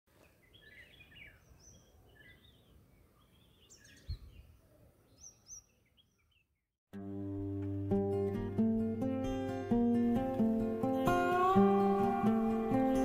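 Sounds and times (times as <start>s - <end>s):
small birds chirping: 0.2s - 6.7s.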